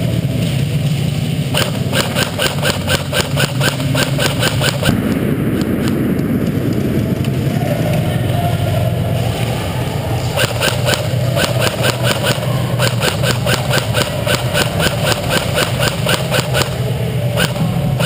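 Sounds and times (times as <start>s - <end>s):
steady low hum: 0.0s - 18.0s
airsoft gun shots: 1.5s - 6.0s, 10.4s - 16.8s, 17.4s - 17.6s.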